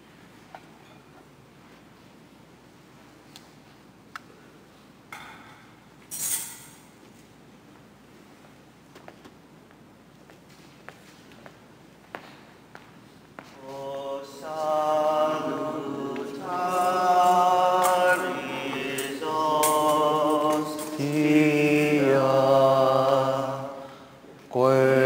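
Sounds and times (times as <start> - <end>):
voices singing a slow hymn: 13.4 - 25.0.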